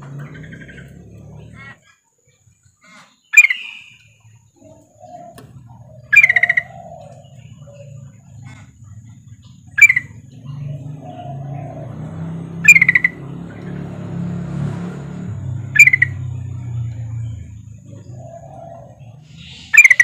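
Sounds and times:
bird giving sharp calls: 0:02.8 - 0:20.0.

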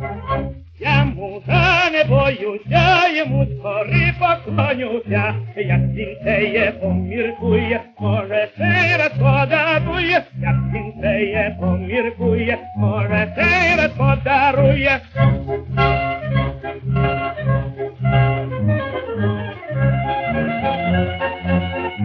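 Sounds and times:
orchestral accompaniment: 0:00.0 - 0:01.9, 0:09.3 - 0:22.0
man singing with vibrato: 0:00.8 - 0:15.4.

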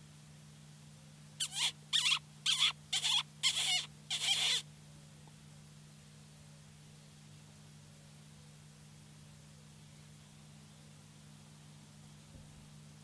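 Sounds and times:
faint low hum: 0:00.0 - 0:13.0
shrill mouth squeaks: 0:01.4 - 0:04.6.

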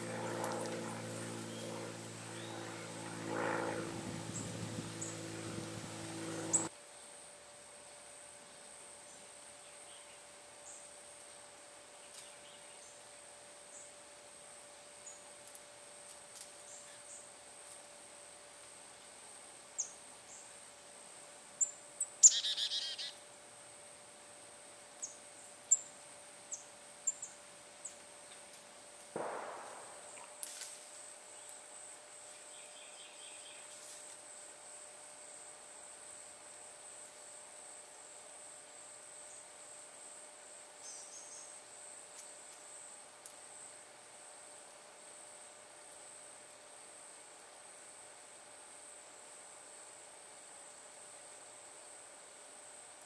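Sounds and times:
songbird chip calls: 0:21.6 - 0:23.2.

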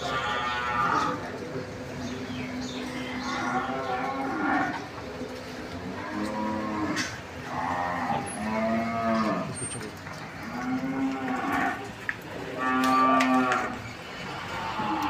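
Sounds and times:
cattle mooing: 0:00.0 - 0:01.3, 0:02.8 - 0:04.9, 0:05.8 - 0:09.6, 0:10.3 - 0:11.9, 0:12.5 - 0:15.0.

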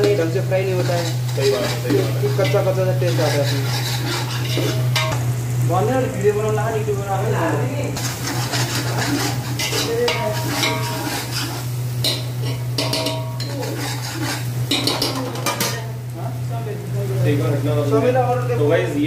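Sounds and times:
onion frying with light sizzle: 0:00.0 - 0:19.0
ladle scraping a metal pot: 0:00.7 - 0:05.2, 0:08.0 - 0:15.7.

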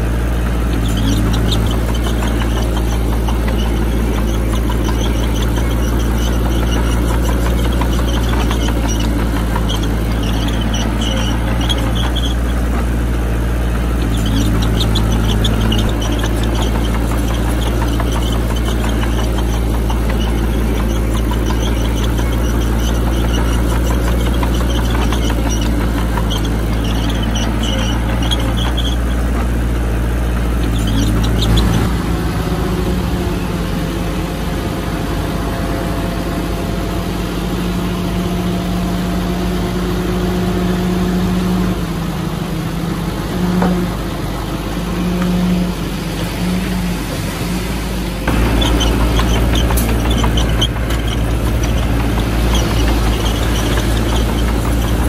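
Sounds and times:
diesel machinery running: 0:00.0 - 0:55.0
short high squeaks: 0:00.1 - 0:32.4, 0:48.2 - 0:55.0.

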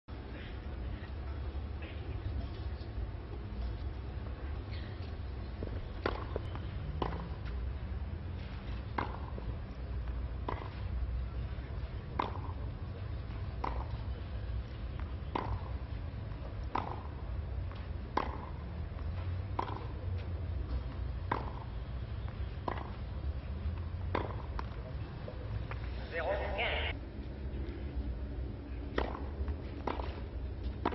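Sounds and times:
steady low hum: 0:00.1 - 0:30.9
tennis ball struck by rackets: 0:06.0 - 0:07.6, 0:08.9 - 0:09.4, 0:10.4 - 0:10.8, 0:12.1 - 0:12.6, 0:13.6 - 0:14.0, 0:15.3 - 0:15.8, 0:16.6 - 0:20.0, 0:21.2 - 0:21.7, 0:22.4 - 0:23.0, 0:24.0 - 0:24.8, 0:28.9 - 0:30.9.

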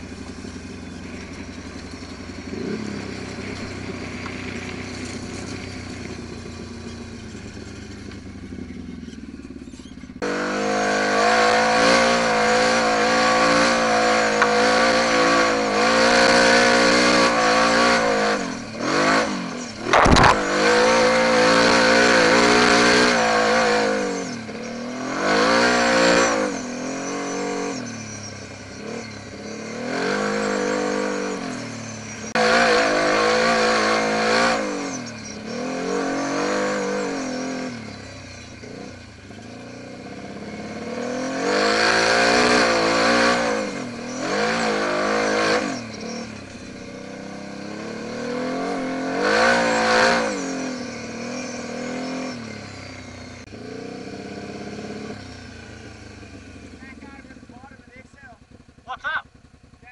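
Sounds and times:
quad bike engine revving: 0:00.0 - 0:59.9
thump: 0:19.9 - 0:20.5.

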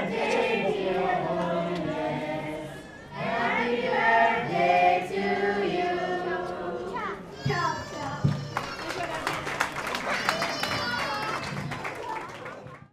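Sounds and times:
group singing in unison: 0:00.0 - 0:07.0.

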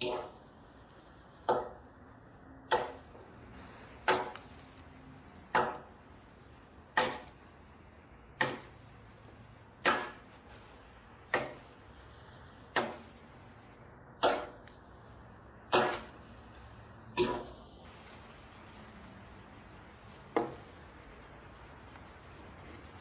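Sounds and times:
axe chopping log: 0:02.7 - 0:03.0, 0:04.0 - 0:04.3, 0:05.5 - 0:05.9, 0:07.0 - 0:07.3, 0:08.4 - 0:08.7, 0:09.8 - 0:10.2, 0:11.3 - 0:11.6, 0:12.7 - 0:13.0, 0:14.2 - 0:14.6, 0:15.7 - 0:16.2, 0:17.2 - 0:17.5, 0:20.3 - 0:20.6.

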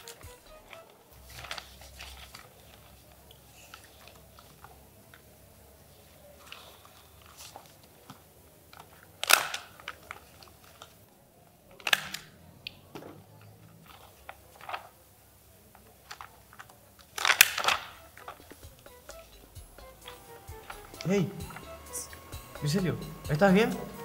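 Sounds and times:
paper rustling and pages turning: 0:00.0 - 0:05.3, 0:05.9 - 0:12.3, 0:12.9 - 0:24.0
desk items clicking: 0:15.8 - 0:24.0.

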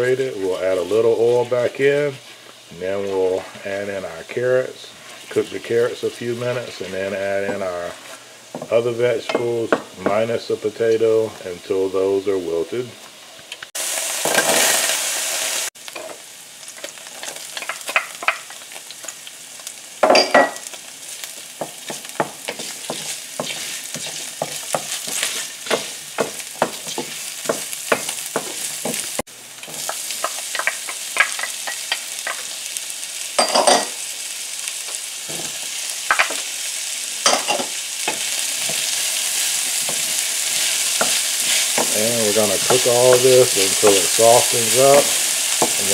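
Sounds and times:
vegetables sizzling in oil: 0:00.0 - 0:45.9
wooden spoon scraping a pan: 0:04.9 - 0:08.8, 0:21.1 - 0:30.4, 0:37.6 - 0:45.9
wooden spoon knocking on pan: 0:08.5 - 0:10.2, 0:21.6 - 0:31.4, 0:41.8 - 0:44.0.

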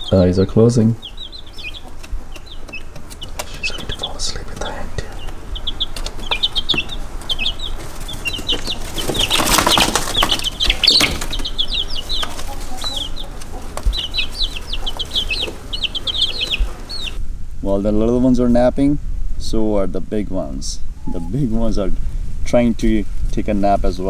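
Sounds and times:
rustling: 0:00.0 - 0:17.2
baby chicks peeping: 0:00.0 - 0:24.0.

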